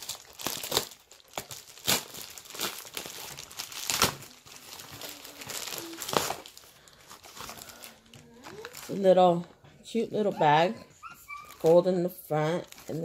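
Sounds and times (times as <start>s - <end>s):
packaging crinkling and tearing: 0.0s - 9.2s, 11.4s - 13.0s.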